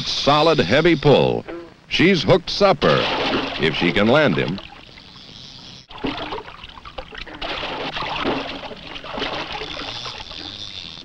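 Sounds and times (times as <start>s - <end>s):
water splashing and churning: 2.7s - 11.0s.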